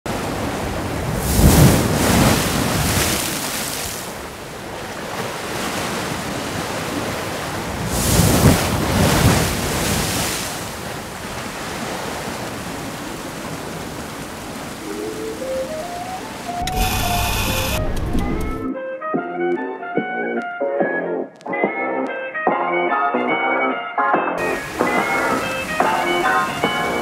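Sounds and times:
waves breaking on rocky shore: 0.1s - 17.7s, 24.4s - 27.0s.

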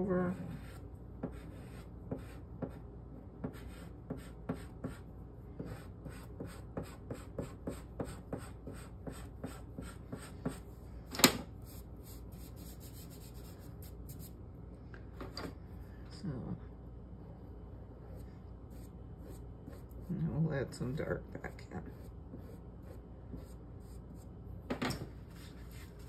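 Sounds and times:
pastel scratching on paper: 11.7s - 14.3s.

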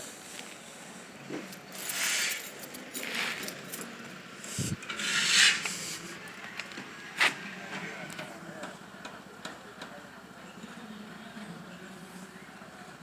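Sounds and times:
shoes scraping on concrete: 4.9s - 7.4s.

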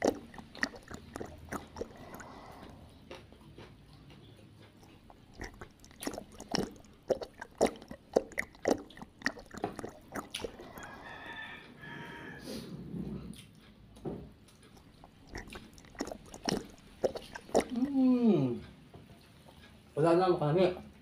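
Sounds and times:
wet mouth chewing sounds: 0.0s - 11.7s, 13.3s - 19.8s.

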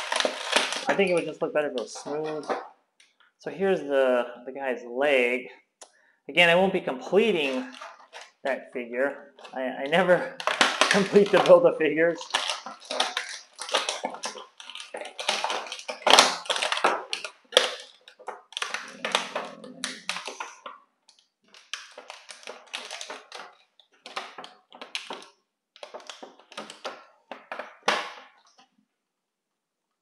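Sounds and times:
plastic packaging crinkling: 0.0s - 2.7s, 7.1s - 8.5s, 9.2s - 28.7s.

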